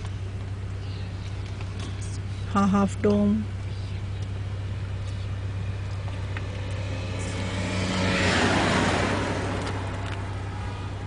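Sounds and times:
steady low hum: 0.0s - 11.0s
car driving past: 5.4s - 11.0s.

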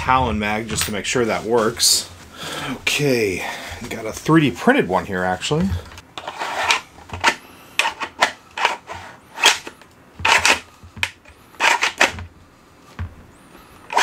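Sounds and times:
magazine sliding scrapes: 6.2s - 10.7s, 11.5s - 12.2s.

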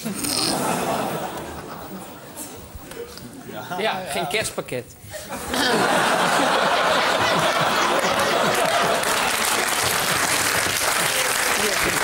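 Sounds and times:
audience laughing and applauding: 5.4s - 12.0s.

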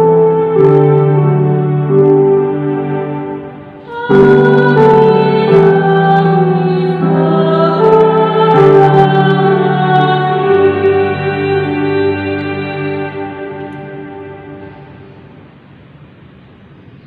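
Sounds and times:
slow keyboard chords: 0.0s - 16.8s.

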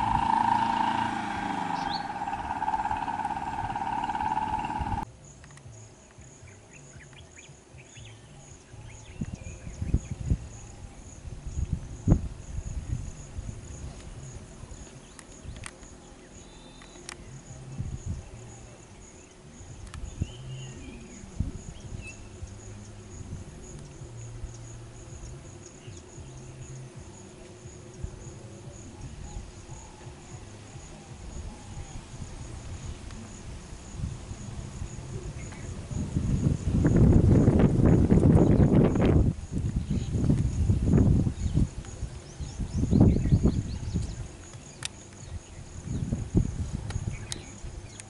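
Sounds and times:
low rumble: 0.0s - 5.1s
insects chirring: 0.0s - 48.0s.

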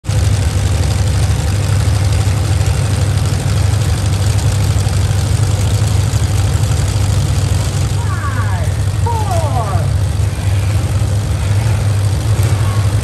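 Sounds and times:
truck engines rumbling: 0.0s - 13.0s.

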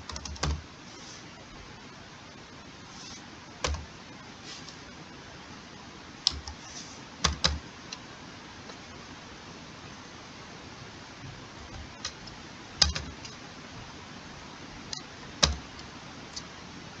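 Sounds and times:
computer keyboard keystrokes: 0.0s - 0.6s, 6.2s - 6.6s, 7.2s - 7.6s, 11.7s - 13.4s, 14.9s - 16.5s
faint steady hiss: 0.0s - 17.0s.

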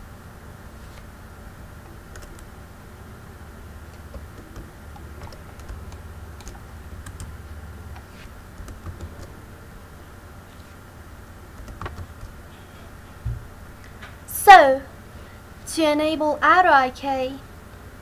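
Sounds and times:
low steady hum: 0.0s - 18.0s
computer keyboard clicks: 2.1s - 2.5s, 3.9s - 7.3s, 7.9s - 9.3s, 11.6s - 12.4s.

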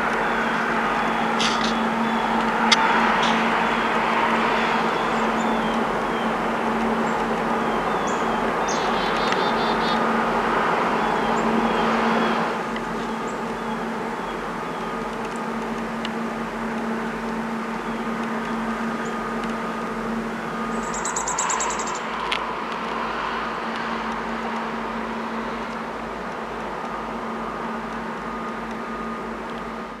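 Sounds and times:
low hum: 0.0s - 30.0s
sharp click: 1.4s - 1.8s.

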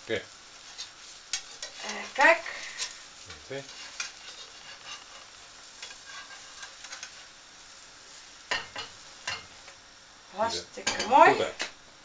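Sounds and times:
egg sizzling in a frying pan: 0.0s - 12.0s
spatula scraping a pan: 0.5s - 7.4s.

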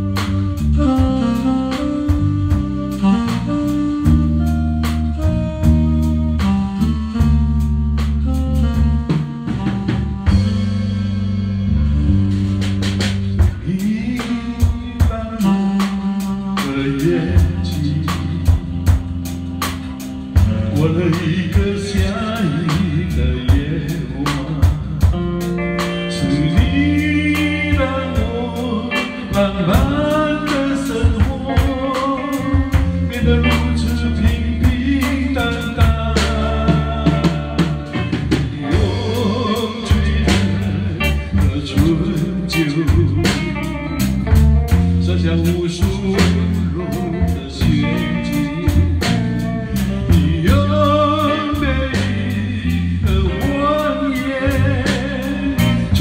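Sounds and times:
band playing slow pop song: 0.0s - 56.0s
person singing: 13.4s - 56.0s.

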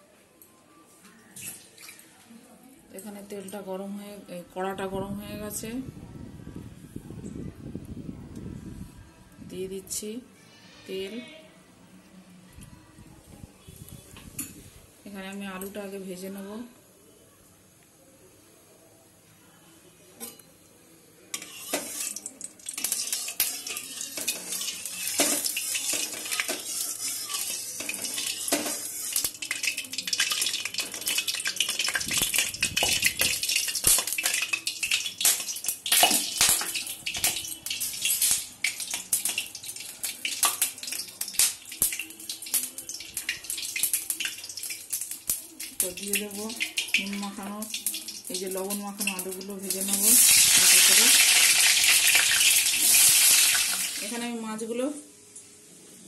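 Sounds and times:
metal spatula scraping pan: 21.3s - 29.4s
hot oil crackling and spitting: 21.3s - 54.2s.

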